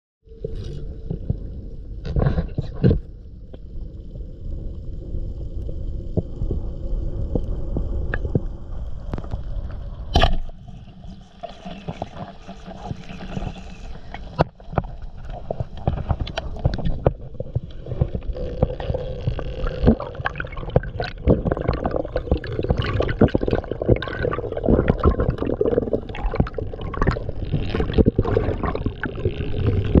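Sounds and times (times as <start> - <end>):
water gurgling underwater: 0.4 - 30.0
underwater clicks and knocks: 14.2 - 30.0.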